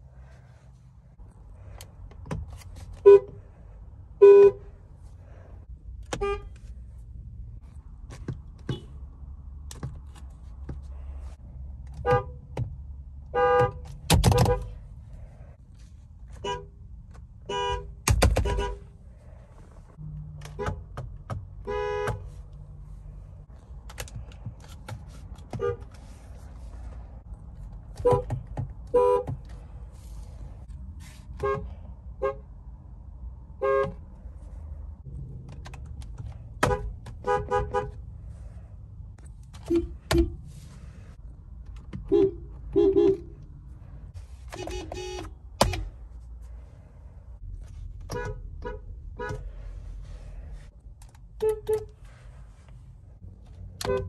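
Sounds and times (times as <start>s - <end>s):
car horns honking: 2.9s - 3.5s, 4.1s - 4.8s, 6.0s - 6.7s, 11.9s - 12.6s, 13.2s - 14.8s, 16.3s - 19.0s, 20.4s - 22.5s, 25.4s - 26.2s, 27.9s - 29.5s, 31.2s - 32.5s, 33.5s - 34.1s, 36.6s - 38.0s, 39.6s - 40.6s, 41.9s - 43.5s, 44.3s - 46.0s, 48.1s - 49.6s, 51.4s - 52.2s, 53.7s - 54.0s.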